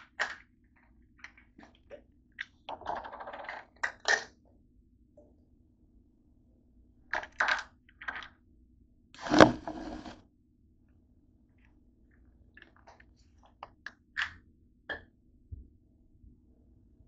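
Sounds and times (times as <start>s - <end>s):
camera rustling bumps: 9.2s - 10.2s
scrape and knock on desk: 9.2s - 10.2s.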